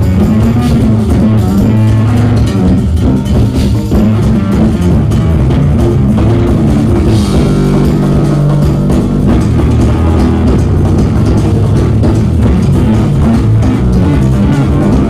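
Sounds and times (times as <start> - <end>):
jazz fusion band playing: 0.0 - 15.0.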